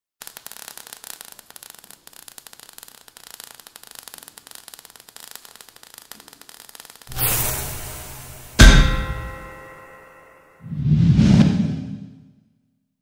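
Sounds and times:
crackling sparks hiss: 0:00.2 - 0:08.7.

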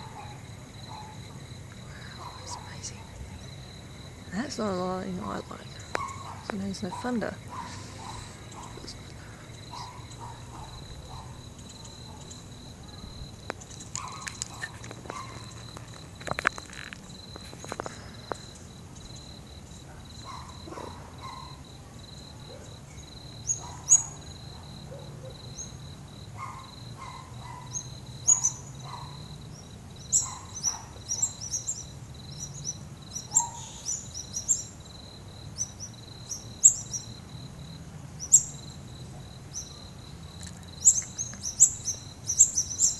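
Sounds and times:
cricket chirping: 0:00.0 - 0:42.9
low distant hum: 0:00.0 - 0:42.9
bird chirps: 0:27.0 - 0:34.8, 0:35.6 - 0:37.2, 0:40.4 - 0:42.9.

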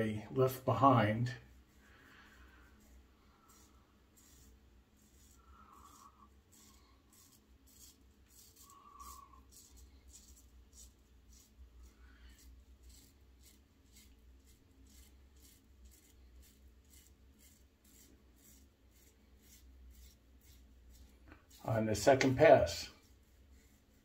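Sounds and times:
razor blade scraping stubble: 0:03.4 - 0:22.8.

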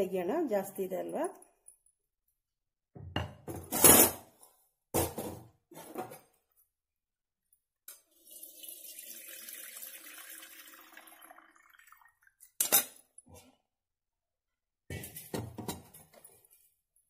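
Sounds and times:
water splashing into a pot: 0:08.0 - 0:12.7.

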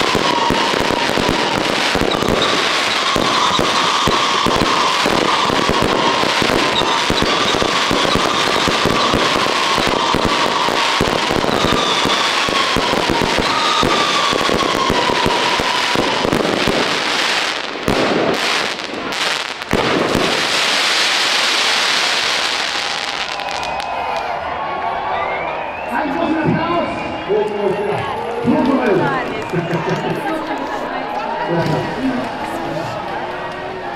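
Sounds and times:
firework whistle sliding down: 0:00.0 - 0:16.6
firework bangs: 0:00.0 - 0:24.3
fireworks crackling and popping: 0:00.0 - 0:24.3, 0:28.1 - 0:31.4.

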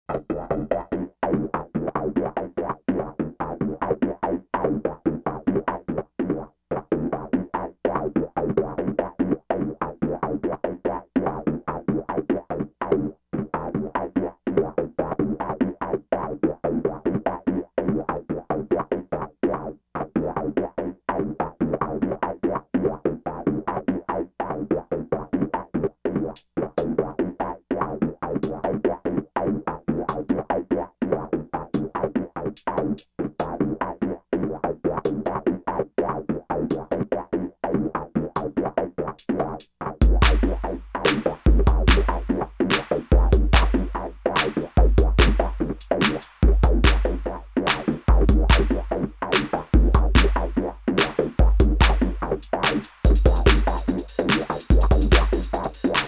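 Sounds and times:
choppy rhythmic music: 0:00.1 - 0:04.0, 0:28.4 - 0:28.9, 0:31.7 - 0:32.0, 0:35.0 - 0:35.5, 0:36.7 - 0:37.1, 0:38.3 - 0:56.0.

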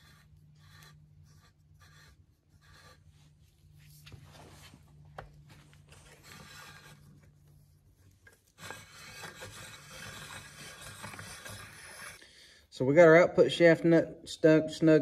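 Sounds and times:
tool scraping metal nut: 0:08.3 - 0:12.2.

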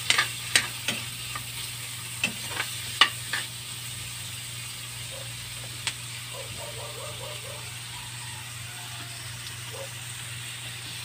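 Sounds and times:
metal spatula clicking on wok: 0:00.0 - 0:01.1
constant hum: 0:00.0 - 0:11.0
food sizzling in a wok: 0:00.0 - 0:11.0.

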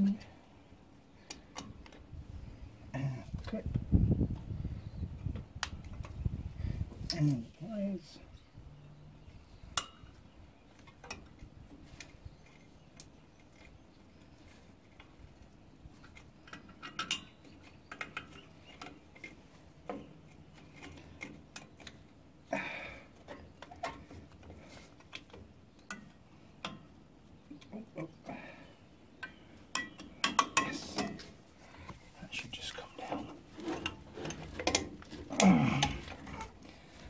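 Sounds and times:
small metallic clicks and clinks: 0:16.0 - 0:19.4, 0:29.2 - 0:31.3.

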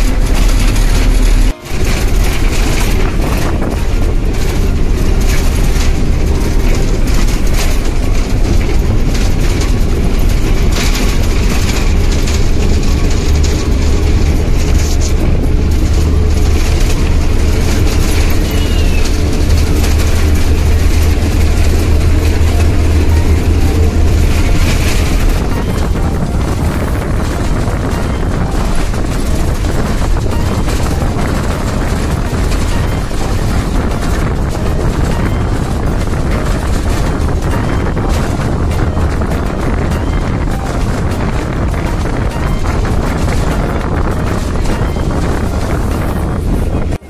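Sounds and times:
vehicle engine and road rumble: 0:00.0 - 0:47.0.

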